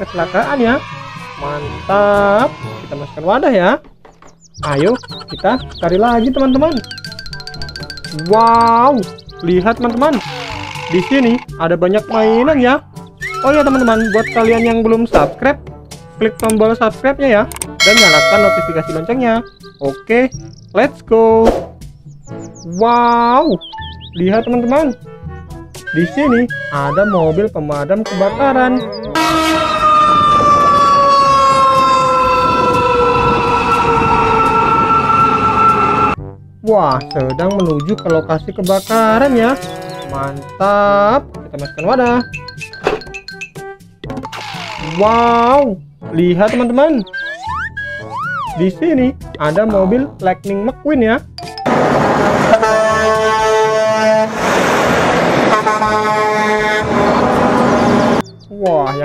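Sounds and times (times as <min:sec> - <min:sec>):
fire engine siren horn: 0:29.1 - 0:36.2, 0:51.7 - 0:58.2
truck air horn blasts: 0:29.2 - 0:30.2, 0:51.7 - 0:54.5, 0:55.3 - 0:58.2
truck and road noise: 0:51.4 - 0:58.5
traffic rumble: 0:51.7 - 0:58.5.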